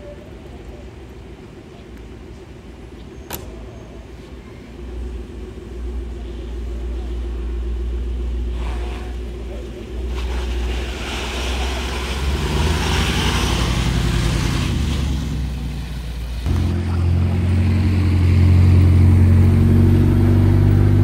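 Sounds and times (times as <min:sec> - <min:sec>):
car engine running loudly: 0:11.1 - 0:21.0.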